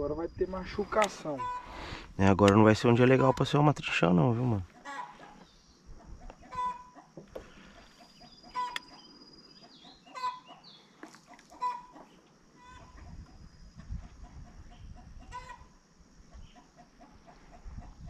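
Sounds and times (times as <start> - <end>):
bird calls: 1.0 - 2.0, 4.7 - 13.5, 16.3 - 18.0.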